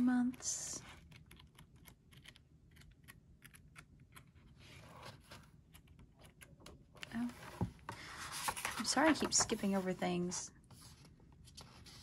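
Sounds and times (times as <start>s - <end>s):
paper rustle: 7.2s - 12.0s.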